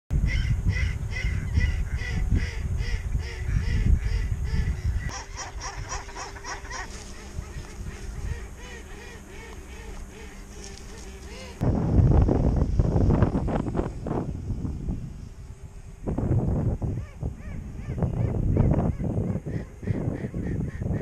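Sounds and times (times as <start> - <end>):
wind rumbling on microphone: 0.1 - 21.0
waterfowl honking: 0.3 - 11.6.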